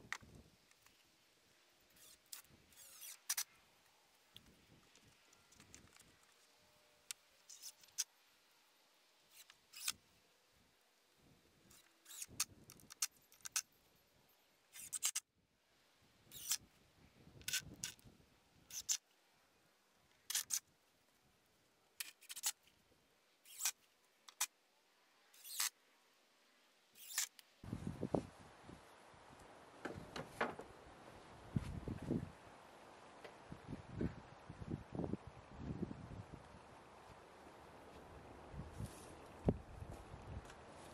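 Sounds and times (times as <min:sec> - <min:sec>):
lumber and tools handled on boards: 0:29.8 - 0:30.7.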